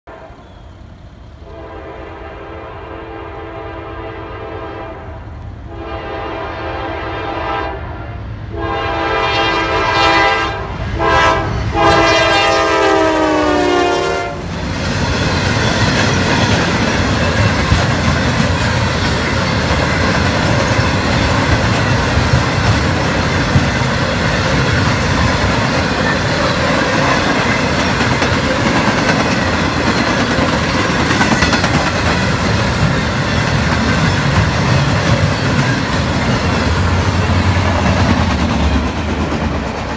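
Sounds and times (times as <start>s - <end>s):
train horn blasts: 0.0s - 0.6s, 1.4s - 14.5s
train wheels rumbling and clattering: 10.7s - 39.9s.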